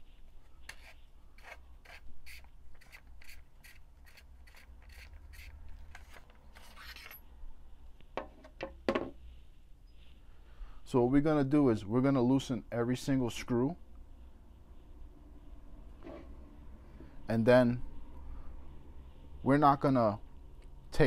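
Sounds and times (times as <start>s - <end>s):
long metal scrape: 0.0s - 7.2s
light clicks and scrapes: 0.4s - 7.2s.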